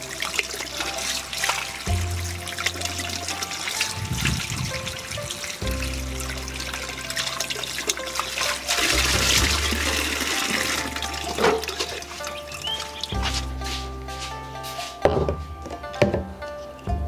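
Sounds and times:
tap water running and splashing: 0.0s - 13.6s
background music with held notes: 0.0s - 17.0s.

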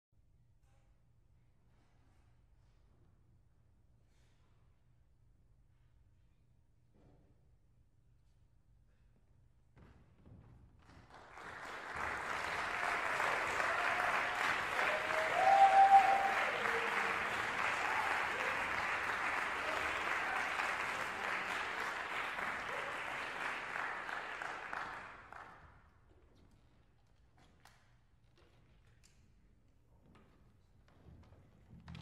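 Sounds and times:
audience applauding: 11.1s - 25.6s
brief cheer: 11.9s - 25.1s.

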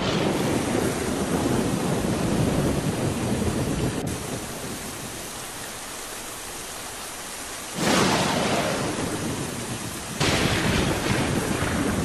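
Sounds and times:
thunder rumbling: 0.0s - 5.3s, 7.7s - 12.0s
rain hissing: 0.0s - 12.0s.

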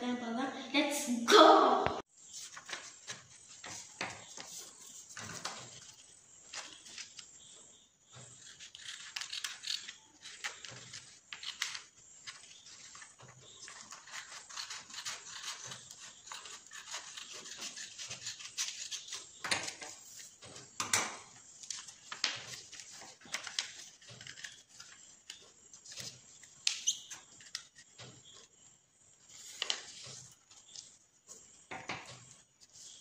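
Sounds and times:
paper rustling and crinkling: 2.3s - 7.4s, 21.6s - 28.2s, 29.2s - 33.0s
scissors cutting paper: 8.4s - 12.4s, 13.7s - 19.3s.

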